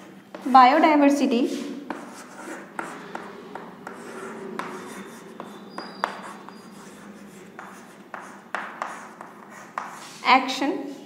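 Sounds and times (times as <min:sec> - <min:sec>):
chalk scratching on chalkboard: 0:01.5 - 0:10.3
chalk tapping on board: 0:01.9 - 0:10.2.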